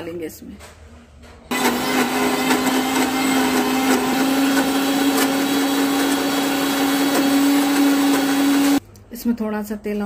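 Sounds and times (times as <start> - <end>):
mixer grinder motor running: 1.5 - 8.8.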